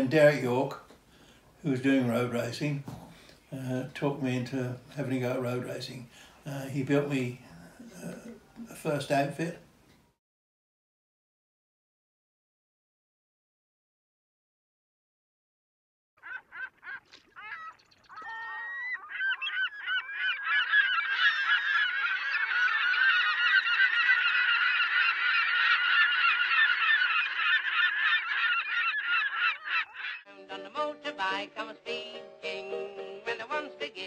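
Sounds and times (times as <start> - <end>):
flock of birds calling: 16.2 - 30.3
music: 30.3 - 34.0.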